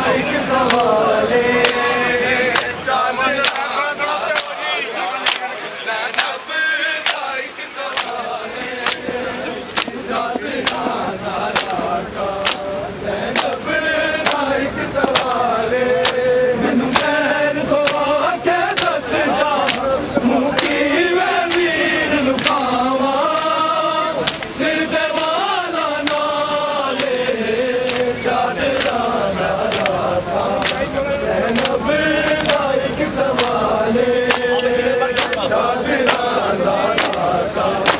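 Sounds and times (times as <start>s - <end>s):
men chanting in unison: 0.0s - 37.9s
hands slapping chests: 0.6s - 1.0s, 1.6s - 1.8s, 3.4s - 3.7s, 5.2s - 5.5s, 6.1s - 6.4s, 7.0s - 7.3s, 7.9s - 12.7s, 13.3s - 13.6s, 14.2s - 15.4s, 16.0s - 16.3s, 17.8s - 18.0s, 18.7s - 19.0s, 19.6s - 19.9s, 21.4s - 21.7s, 22.4s - 22.7s, 24.2s - 24.5s, 26.0s - 26.3s, 28.7s - 29.0s, 29.6s - 30.9s, 31.5s - 31.8s, 32.4s - 32.6s, 33.3s - 33.6s, 34.2s - 37.9s.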